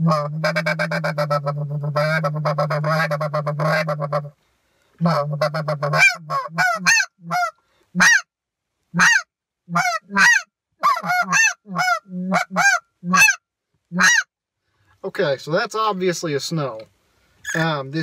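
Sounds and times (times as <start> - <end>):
goose call honking yelps: 0.0 - 4.3, 5.0 - 8.3, 9.0 - 13.4, 14.0 - 14.3, 17.4 - 17.7.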